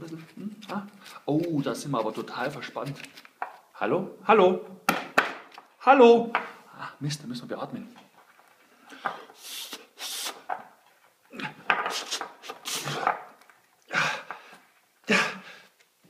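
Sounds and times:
man blowing breathy puffs: 9.0s - 10.5s, 11.9s - 13.1s.

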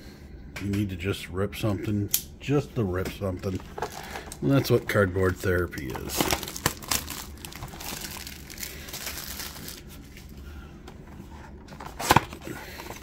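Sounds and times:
plastic wrap crinkling: 3.4s - 10.4s.

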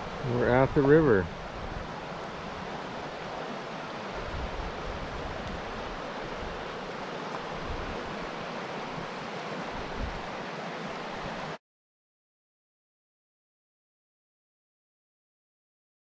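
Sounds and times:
low wind rumble on microphone: 0.0s - 11.6s
river running over stones: 0.0s - 11.6s.

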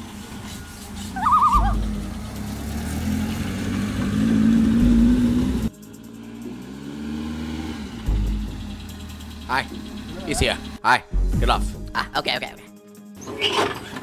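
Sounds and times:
truck engine accelerating: 0.0s - 10.8s
warbling whistle: 0.7s - 1.9s.

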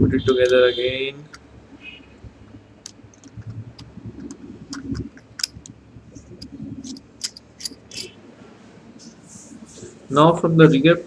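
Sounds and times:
soft handling noise: 2.3s - 8.2s
small metal clicks and scraping: 2.8s - 8.2s.

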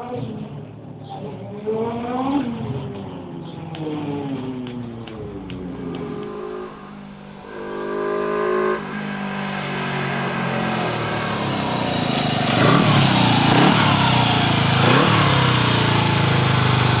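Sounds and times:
motorcycle engine revving: 5.5s - 17.0s.

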